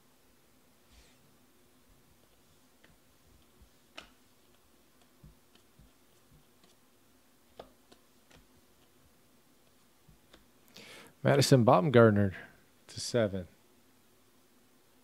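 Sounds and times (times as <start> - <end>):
cards being flipped: 2.2 - 6.8.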